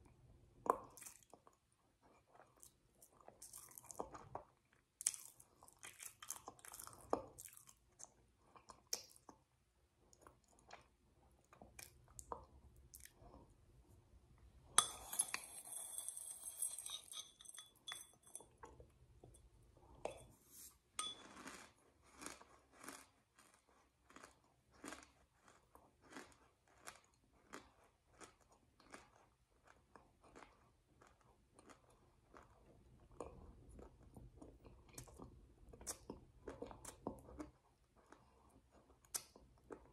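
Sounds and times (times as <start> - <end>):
chewing crunchy food: 0.1 - 13.7, 21.0 - 39.9
clinking: 14.8 - 18.6.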